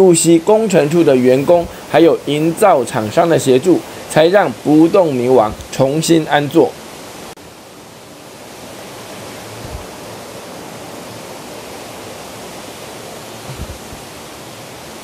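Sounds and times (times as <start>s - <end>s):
flowing water: 0.0s - 15.0s
soft low bumps: 9.5s - 10.0s, 13.4s - 14.1s.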